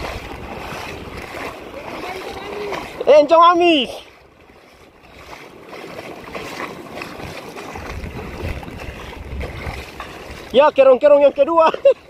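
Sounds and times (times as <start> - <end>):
water washing over sandy shore: 0.0 - 12.0
low microphone rumble: 7.3 - 10.5.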